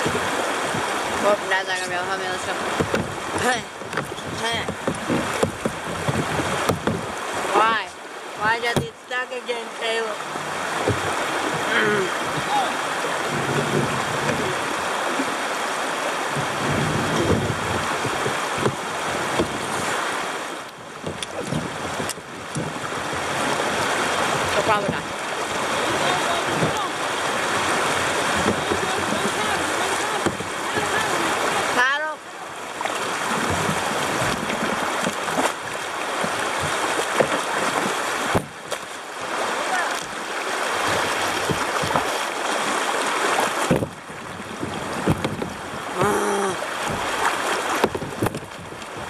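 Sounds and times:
water rushing and splashing: 0.0s - 49.0s
sharp knocks: 2.8s - 7.1s.

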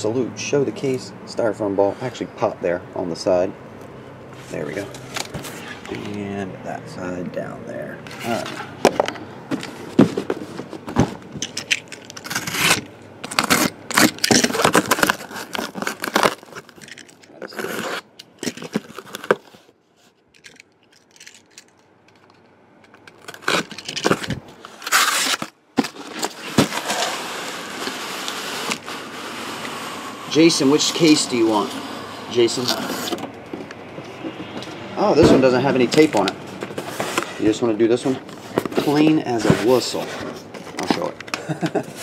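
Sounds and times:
cardboard scraping and rubbing: 4.4s - 6.3s, 9.4s - 20.1s, 23.1s - 33.3s, 33.9s - 41.2s
packing tape crackling: 11.4s - 19.6s, 20.4s - 29.1s.

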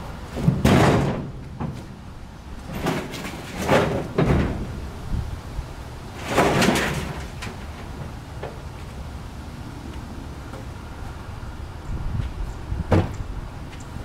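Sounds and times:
wooden boards sliding: 2.6s - 4.9s, 6.1s - 8.6s.

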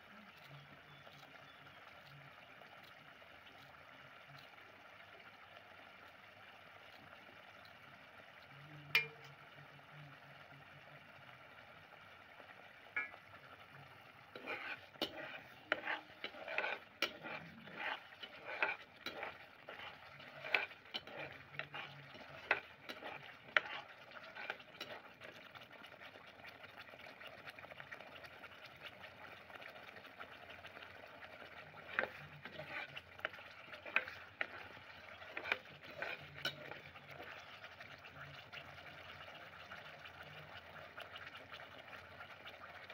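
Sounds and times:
gravy simmering and sizzling: 0.0s - 42.9s
metal skimmer scraping a pot: 9.0s - 9.3s, 14.2s - 25.6s, 30.6s - 39.4s.

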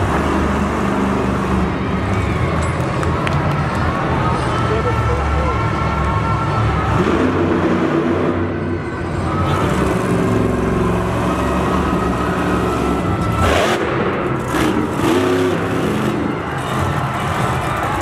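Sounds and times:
truck engine revving hard: 0.0s - 2.0s, 6.8s - 18.0s.

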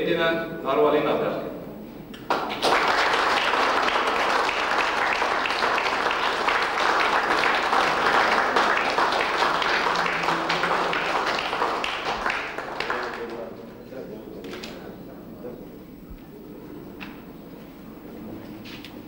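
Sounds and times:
crowd applauding: 2.3s - 13.8s.

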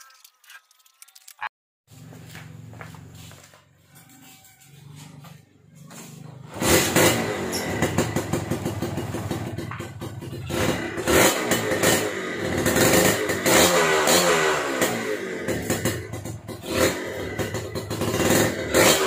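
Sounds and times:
two-stroke engine revving: 4.8s - 19.0s
motorcycle kick-start: 5.9s - 13.4s.

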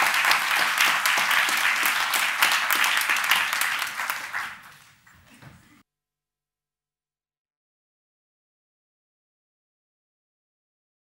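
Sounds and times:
audience applause: 0.0s - 5.8s.

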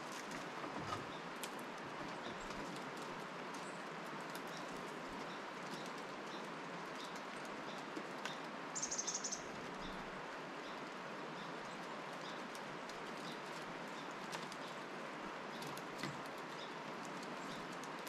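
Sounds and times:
outdoor hiss: 8.5s - 11.2s
bird call: 8.8s - 9.5s.

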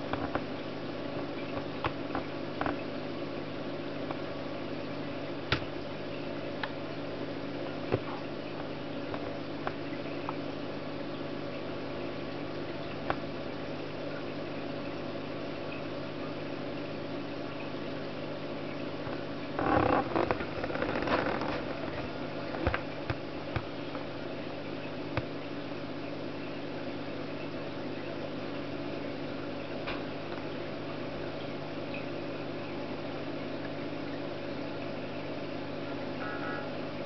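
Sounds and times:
laptop mechanical hum: 35.9s - 36.9s.

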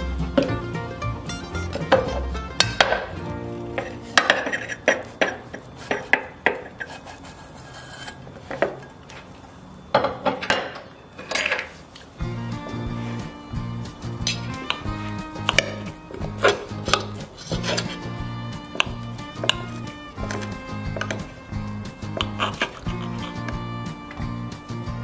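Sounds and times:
background music: 0.0s - 5.2s, 12.2s - 25.0s.

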